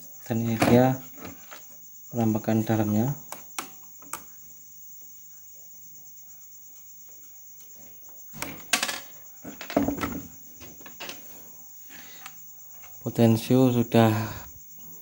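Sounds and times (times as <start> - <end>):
crickets chirring: 0.0 - 15.0
knock and rustle: 7.8 - 11.2
plastic case clatter: 8.4 - 11.2.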